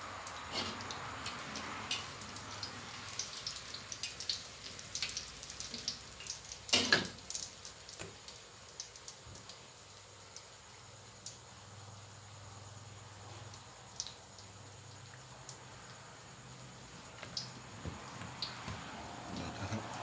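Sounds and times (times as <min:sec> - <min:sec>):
wontons deep-frying in oil: 0:00.0 - 0:20.0
oil popping: 0:16.9 - 0:20.0.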